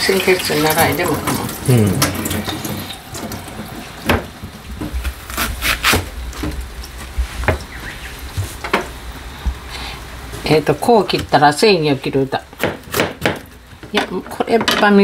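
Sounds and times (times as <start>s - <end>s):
soft rubbing and handling: 6.9s - 10.6s
knife chopping on wooden board: 12.6s - 13.5s.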